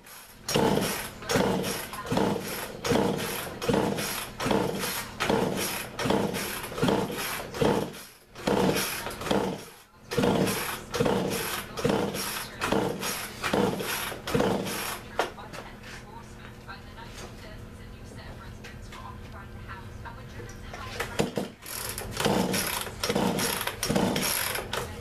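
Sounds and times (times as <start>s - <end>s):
hand tool rasping strokes: 0.0s - 15.1s, 21.6s - 24.9s.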